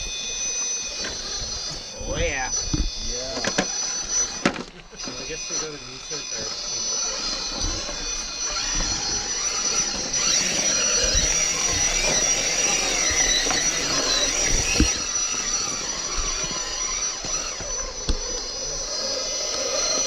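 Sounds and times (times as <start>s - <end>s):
toy car motor whining: 0.0s - 20.0s.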